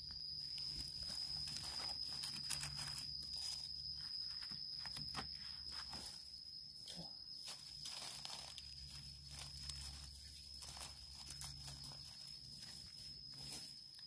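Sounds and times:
steady high-pitched whine: 0.0 - 14.0
dry leaves rustling and crackling: 0.5 - 4.5, 7.4 - 14.0.

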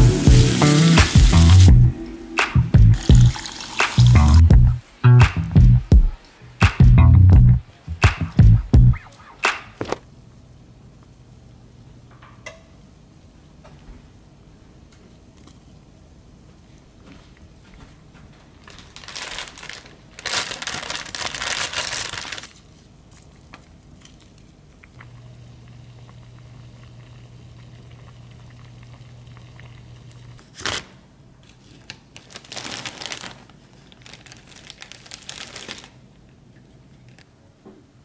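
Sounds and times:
steady low hum: 1.3 - 3.3, 4.2 - 9.5
stew boiling and bubbling: 2.8 - 4.7, 23.0 - 30.4.

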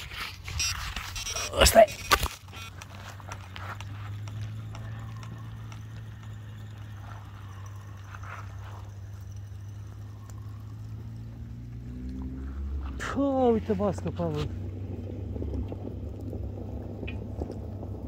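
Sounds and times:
steady low hum: 0.0 - 18.0
fishing reel winding: 4.2 - 11.3.

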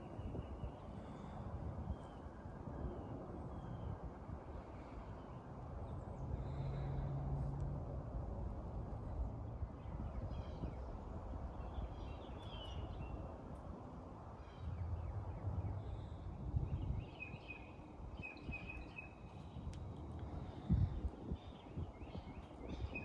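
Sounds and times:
steady low rumble: 4.2 - 23.0
birds chirping: 20.5 - 23.0.

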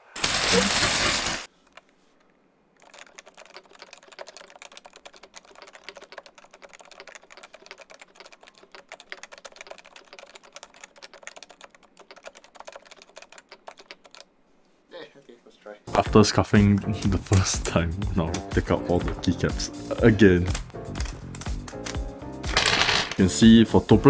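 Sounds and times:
rapid muted keyboard typing: 0.0 - 1.9, 2.7 - 14.3, 16.5 - 23.3.

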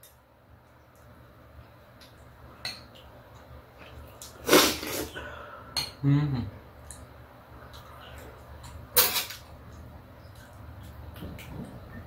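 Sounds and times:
loud breathy noise: 4.6 - 5.8.

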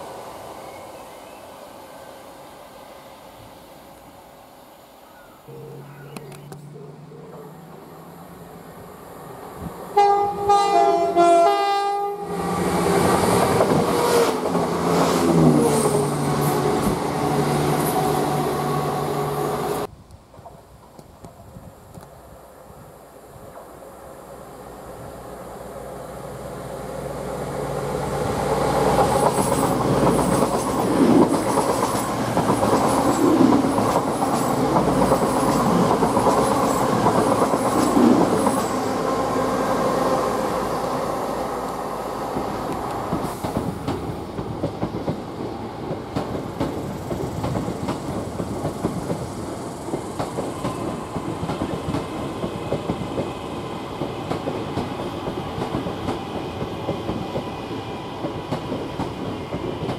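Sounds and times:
train passing: 0.0 - 19.9, 22.1 - 59.9
train wheels clicking: 28.4 - 39.2, 41.6 - 59.9.

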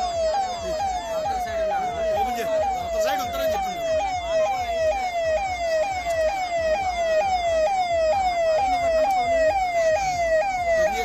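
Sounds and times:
electronic siren wailing: 0.0 - 11.0.

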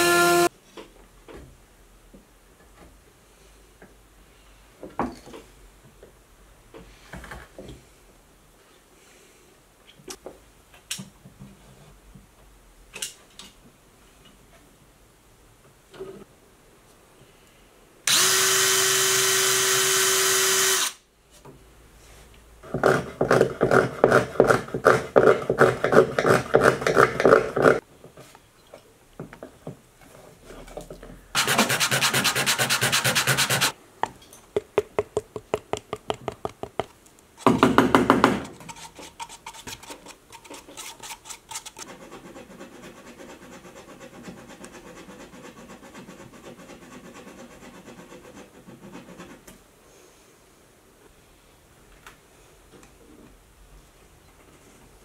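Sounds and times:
drill boring into wood: 0.0 - 0.5, 18.1 - 21.0
rhythmic rubbing strokes: 31.4 - 33.8.

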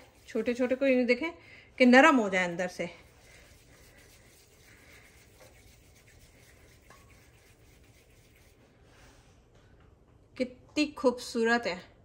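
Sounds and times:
palms rubbing dough: 0.0 - 9.1.

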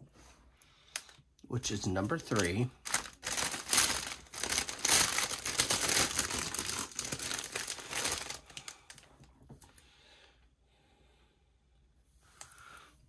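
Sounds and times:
plastic packaging crinkling: 2.0 - 9.1.

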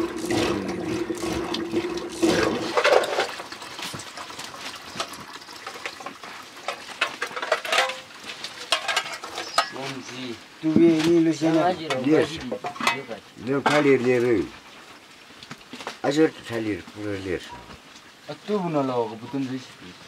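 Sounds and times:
liquid sloshing in clay pot: 0.0 - 8.1
liquid pouring: 0.0 - 8.2.

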